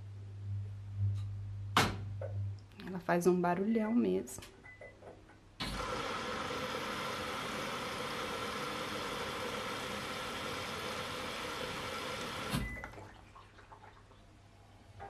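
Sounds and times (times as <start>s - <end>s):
washing machine running: 5.6s - 14.0s.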